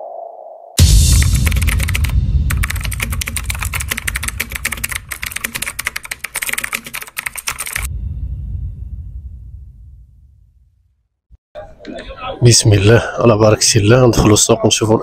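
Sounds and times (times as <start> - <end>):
low rumble: 0.8 - 6.3, 7.6 - 11.0
rapid keyboard typing: 1.1 - 7.9.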